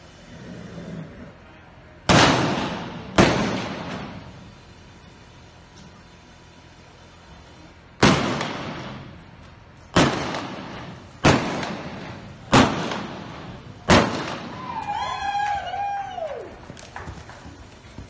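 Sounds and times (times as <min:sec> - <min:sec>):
revolver shots with echo: 0:02.1 - 0:04.3, 0:10.0 - 0:14.6.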